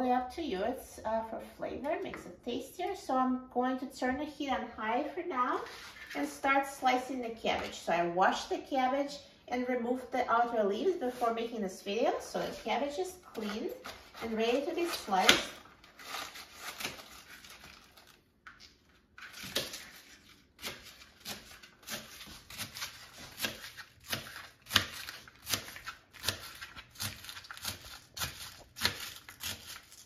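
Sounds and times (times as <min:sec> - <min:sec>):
knife chopping cabbage on board: 0:19.4 - 0:30.0.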